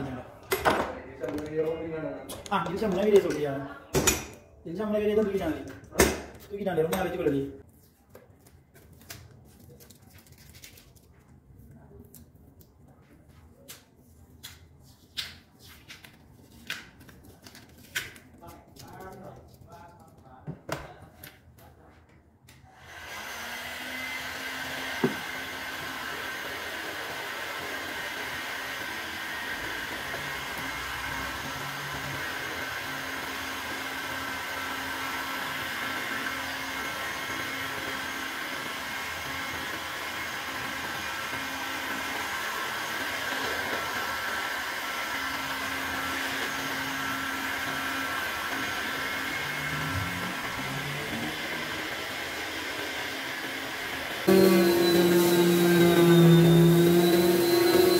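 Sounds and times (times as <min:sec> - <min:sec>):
heat gun blowing air: 0:22.8 - 0:57.9.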